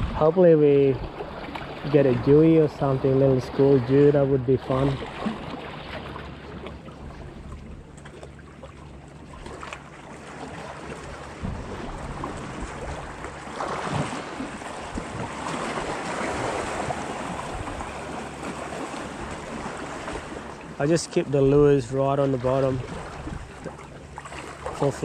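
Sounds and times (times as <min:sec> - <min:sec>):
wind buffeting microphone: 0:00.0 - 0:05.5, 0:11.1 - 0:21.7
waves lapping against rocks: 0:00.0 - 0:25.0.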